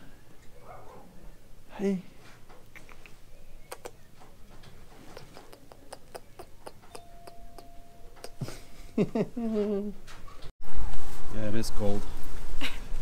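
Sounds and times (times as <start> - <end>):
faint steady tone: 6.8 - 9.7.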